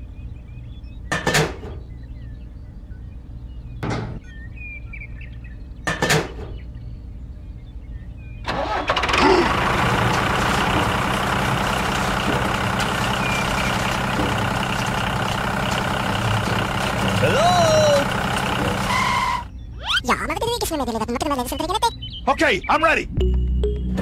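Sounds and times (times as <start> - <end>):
tractor engine starting and running: 8.5 - 19.5.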